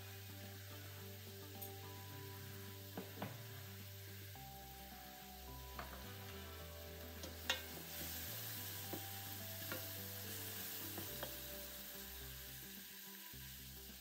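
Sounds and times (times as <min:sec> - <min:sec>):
onions sizzling in oil: 0:00.0 - 0:14.0
soft background music: 0:00.0 - 0:14.0.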